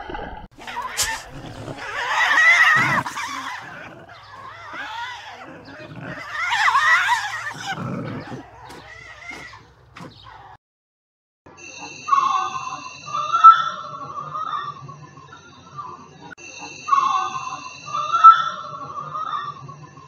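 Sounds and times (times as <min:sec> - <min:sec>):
tasmanian devil screeching: 0:00.6 - 0:10.6.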